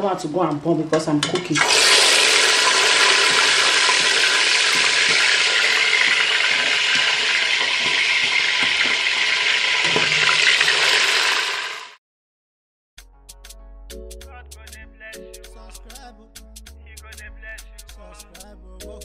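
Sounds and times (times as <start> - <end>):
fish sizzling in hot oil: 1.6 - 12.0.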